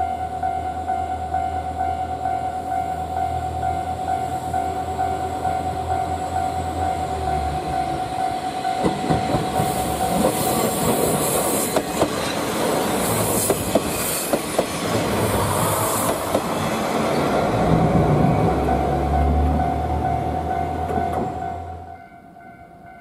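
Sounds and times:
railcar engine whine and hum: 0.0 - 23.0
wheels clicking over rail joints: 8.6 - 15.2
wheel-on-rail hiss: 9.4 - 16.7.

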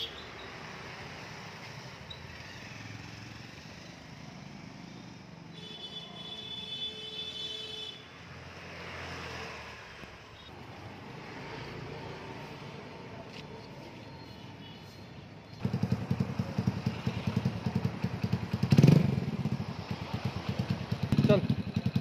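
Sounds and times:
motorcycle engine idling: 15.6 - 22.0.

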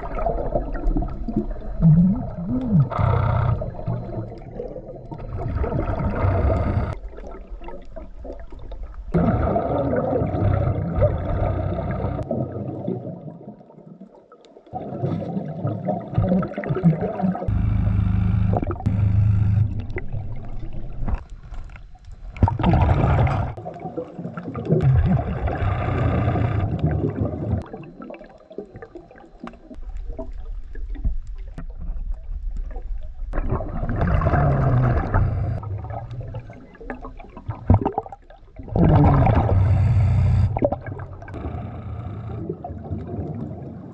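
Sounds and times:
exhaled bubbles gurgling: 0.0 - 43.9
diver breathing through regulator: 2.5 - 4.2, 25.4 - 26.8, 34.2 - 35.6, 38.9 - 40.7, 41.3 - 42.6.

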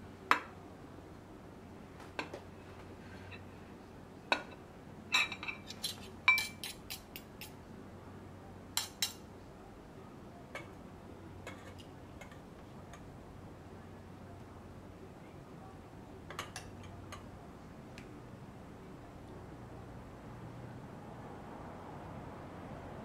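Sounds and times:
cutlery and dishes clinking: 4.3 - 7.5, 8.8 - 9.2, 11.4 - 12.4, 16.3 - 17.2.

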